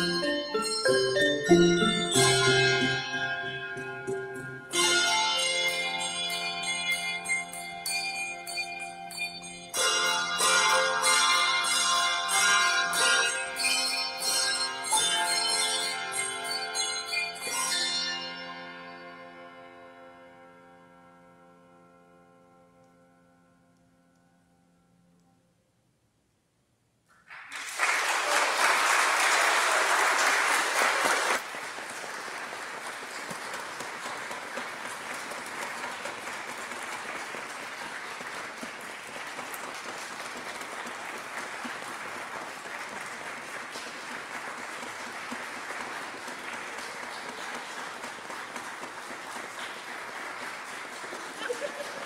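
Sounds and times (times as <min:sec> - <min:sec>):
congregation applauding: 0:27.1 - 0:52.0.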